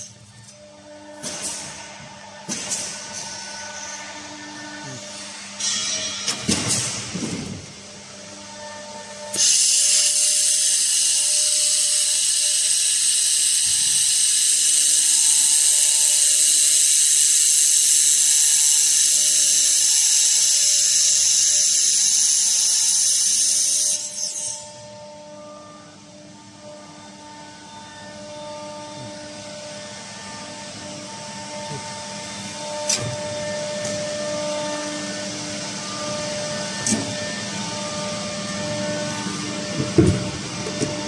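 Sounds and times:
laser welder hissing: 9.3 - 24.6.

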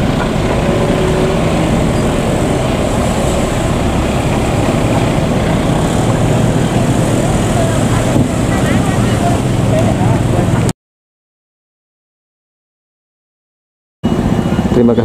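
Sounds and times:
car engine and road noise: 0.0 - 10.7
motorbikes driving slowly: 0.0 - 10.7, 14.1 - 15.0.

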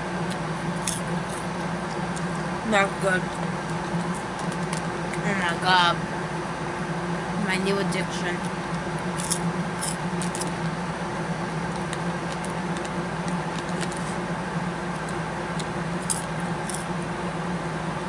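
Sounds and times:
steady low hum: 0.0 - 18.0
chewing crunchy popcorn: 0.1 - 2.6, 3.2 - 5.2, 8.4 - 10.8, 11.4 - 17.1.

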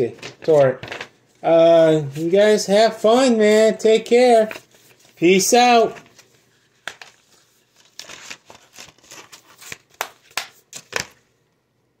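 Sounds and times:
plastic disc case rustles and clicks: 5.9 - 11.2.

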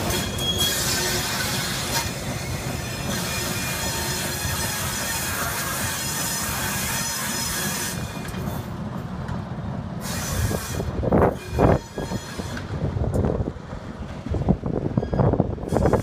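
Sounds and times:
diesel locomotive engine running: 0.0 - 16.0
locomotive wheels noise bursts: 13.7 - 16.0.

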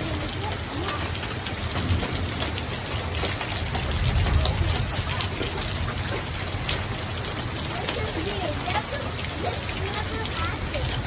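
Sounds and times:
hailstones ticking: 0.0 - 11.0
heavy rain hissing: 0.0 - 11.0.

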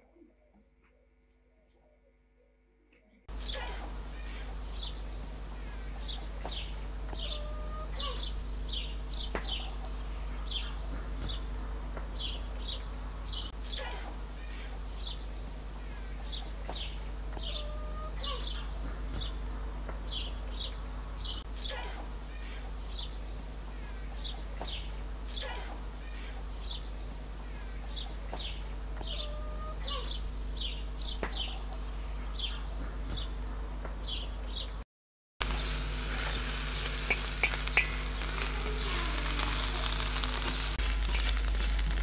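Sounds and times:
steady low hum: 3.3 - 34.8, 35.4 - 42.0
small bird chirping: 4.2 - 11.5, 35.5 - 42.0.

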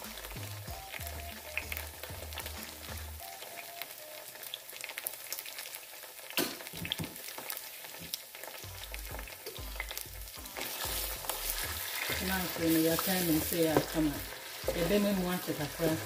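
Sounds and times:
onions sizzling in hot oil: 0.0 - 16.0
wooden spatula scraping a pot: 10.5 - 16.0.

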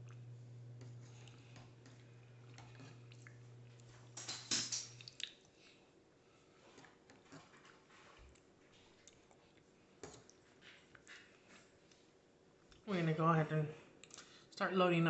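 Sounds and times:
low steady hum: 0.0 - 15.0
wet mouth sounds: 5.0 - 5.6.

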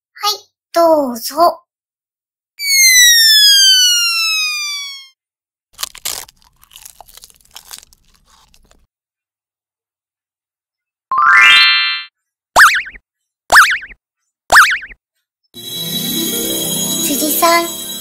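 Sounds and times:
crunchy bites and chews: 5.8 - 8.9
rising chime tones: 15.6 - 18.0.

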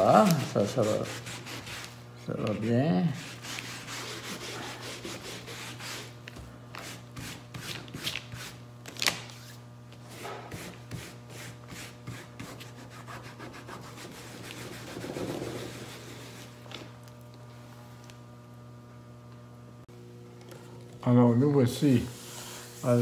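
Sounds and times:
fingers scrubbing damp paper: 0.0 - 6.2, 10.2 - 16.6.

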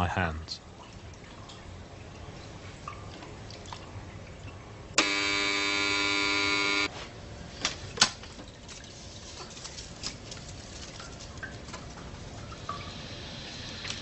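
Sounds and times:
electric buzzer tone: 5.0 - 6.9.

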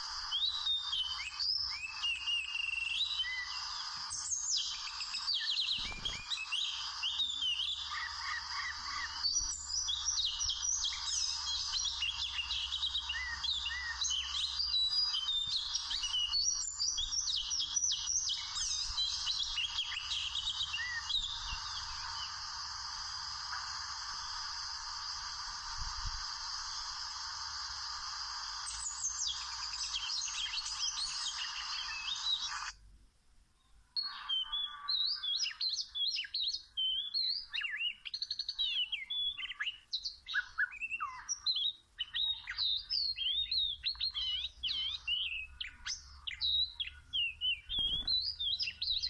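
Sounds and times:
bird singing whistled notes: 0.0 - 32.8, 33.9 - 49.0
background hiss: 0.0 - 49.0.

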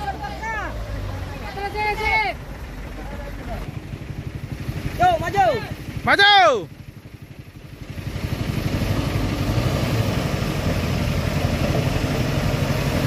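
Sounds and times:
diesel truck engine under load: 0.0 - 13.0.

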